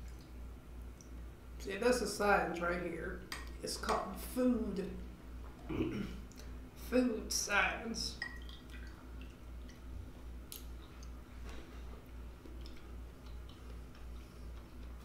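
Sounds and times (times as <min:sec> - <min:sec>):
chewing soft juicy fruit: 0:08.3 - 0:15.0
wet mouth clicks: 0:12.4 - 0:15.0.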